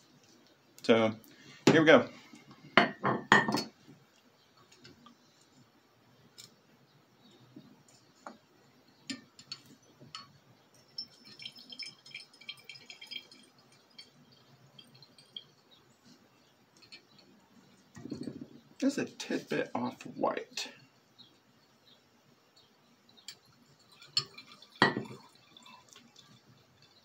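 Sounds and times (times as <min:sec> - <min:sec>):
liquid dripping into glass flask: 0:09.1 - 0:15.8, 0:23.1 - 0:27.0.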